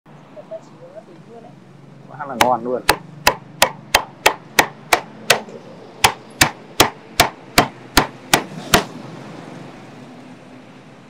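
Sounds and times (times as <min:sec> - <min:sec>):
cleaver chopping on wooden block: 0:02.4 - 0:08.9.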